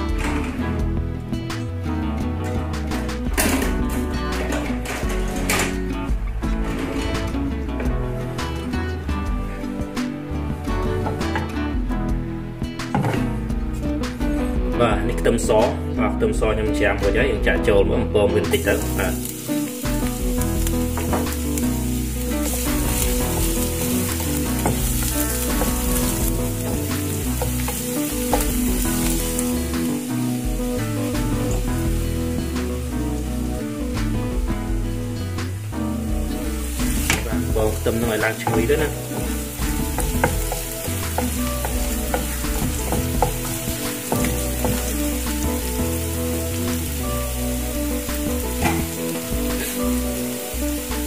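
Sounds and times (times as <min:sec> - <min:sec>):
garlic sizzling in oil: 0:18.5 - 0:51.0.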